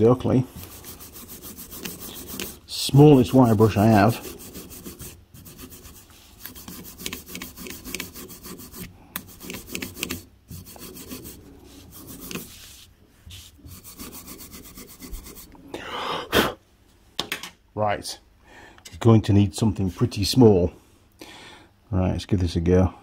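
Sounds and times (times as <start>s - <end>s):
wire brush scrubbing metal: 0.0s - 12.6s.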